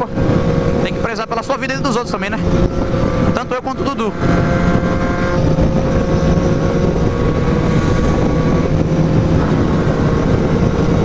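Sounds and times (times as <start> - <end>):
motorcycle engine cruising: 0.0 - 11.0
wind rush on microphone: 0.0 - 11.0.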